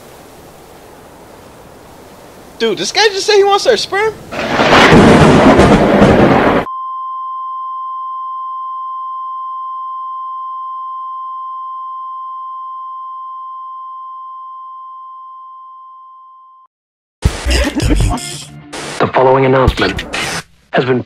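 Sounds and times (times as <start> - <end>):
steady electronic ringing tone: 6.7 - 16.6.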